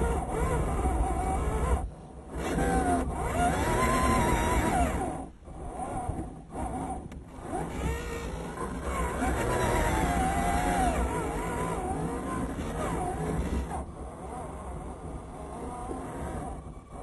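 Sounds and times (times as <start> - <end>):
toy truck motor whining: 0.0 - 17.0.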